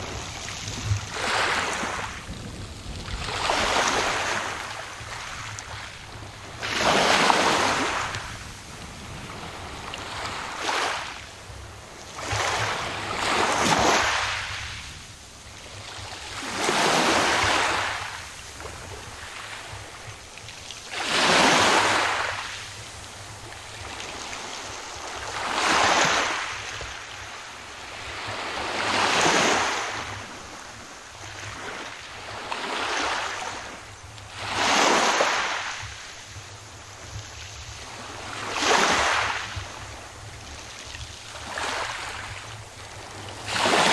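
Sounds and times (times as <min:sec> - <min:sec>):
waves lapping on pebble beach: 0:00.0 - 0:43.9.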